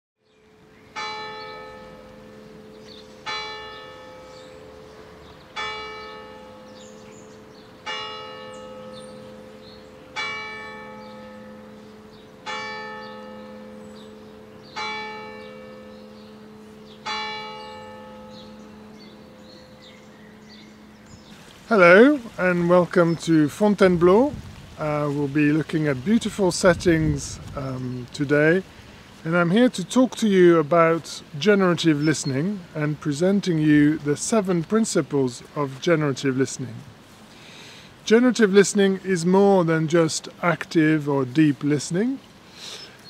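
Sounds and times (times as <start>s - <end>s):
church bell tolling: 0.5s - 21.0s.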